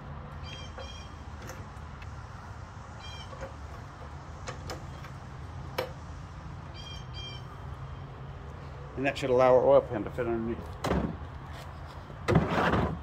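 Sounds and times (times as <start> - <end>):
hydraulic jack squeaking: 0.4 - 1.7.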